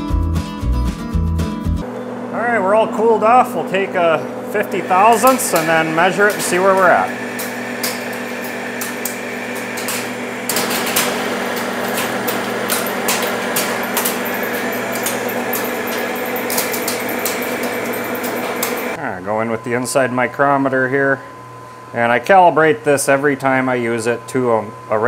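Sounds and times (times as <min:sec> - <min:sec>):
lathe gear hum: 0:01.9 - 0:19.0.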